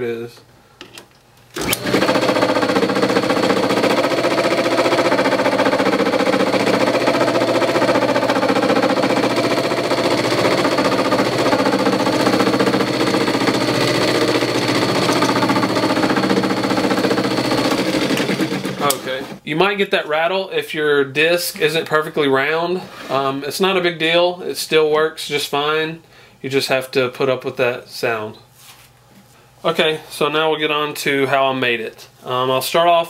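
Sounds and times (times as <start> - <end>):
disc sander running: 1.6 - 19.4
continuous rattle of sander disc: 1.8 - 19.4.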